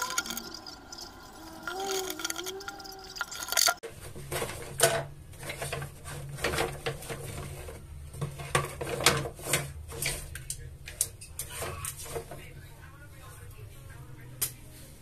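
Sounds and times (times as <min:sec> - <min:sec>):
wooden utensils clacking: 0:00.0 - 0:03.8.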